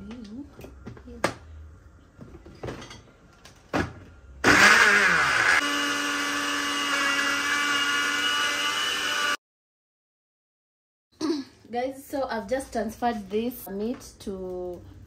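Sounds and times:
blender motor whirring: 4.4 - 9.4.

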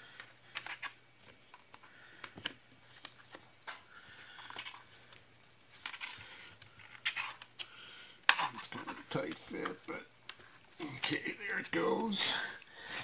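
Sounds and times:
plastic cover clicking and scraping: 5.8 - 11.2.

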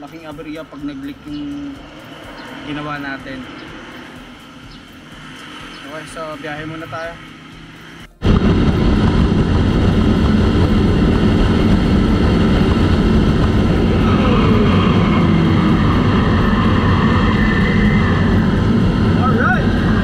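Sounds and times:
motorcycle engine: 0.0 - 20.0
wind rush on microphone: 8.2 - 20.0.

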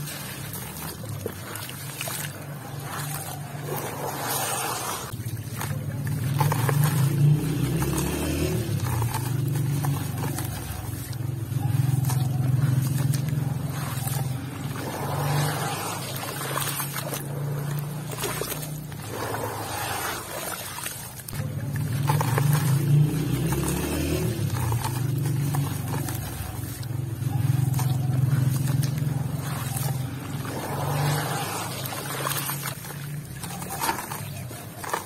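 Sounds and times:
hands squishing wet mud: 0.0 - 35.0.

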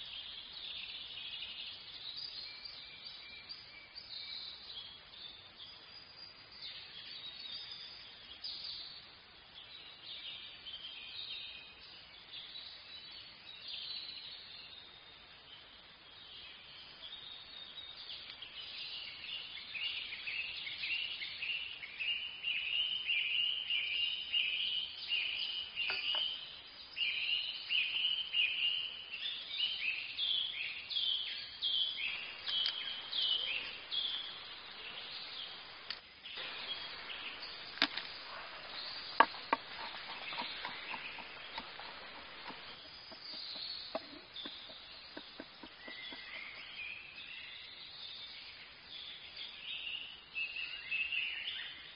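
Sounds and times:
high chirping: 31.5 - 46.8
knife chopping on wooden board: 39.2 - 42.8.

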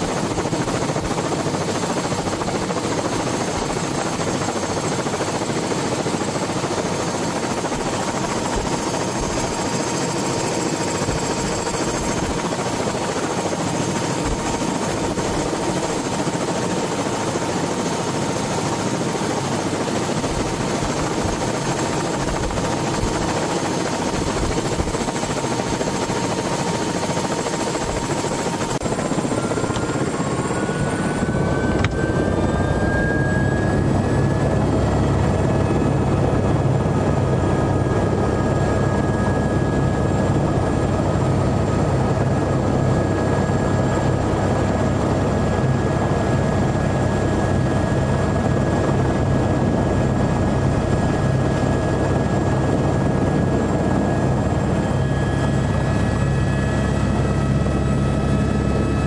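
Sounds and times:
helicopter engine and rotor: 0.0 - 59.0
rising whine: 29.1 - 35.8.

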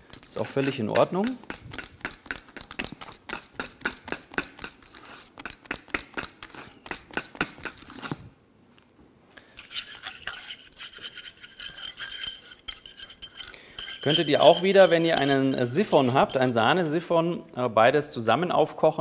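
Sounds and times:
utensil stirring in a bowl: 0.0 - 8.2, 9.6 - 16.9.

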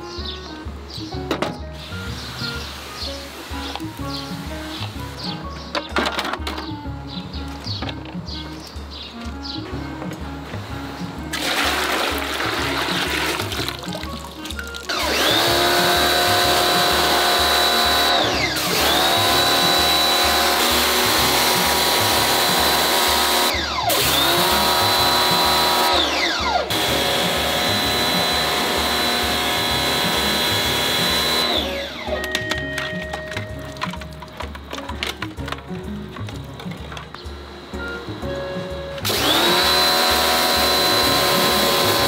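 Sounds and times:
water spray hissing: 1.8 - 5.4, 11.3 - 25.9
pressure washer motor whining: 11.3 - 34.0, 37.7 - 42.0.

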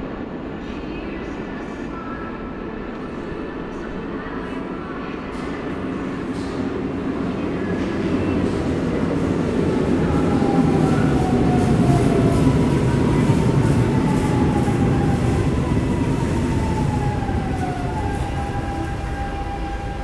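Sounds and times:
train wheels rumbling on track: 5.3 - 20.0
train whines sliding down: 7.6 - 20.0.

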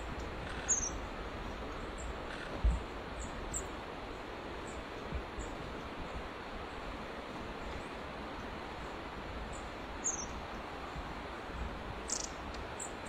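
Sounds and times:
outdoor background hiss: 0.0 - 13.0
high thin bird calls: 0.4 - 1.0, 12.1 - 12.4.

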